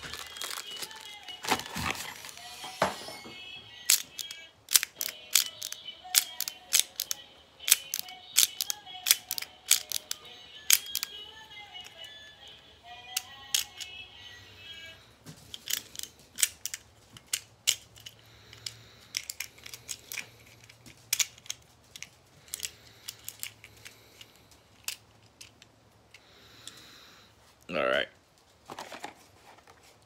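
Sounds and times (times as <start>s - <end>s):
plastic squeaks: 0.0s - 7.0s
plastic parts clicking and snapping: 3.8s - 11.2s, 13.1s - 13.9s, 15.4s - 26.8s.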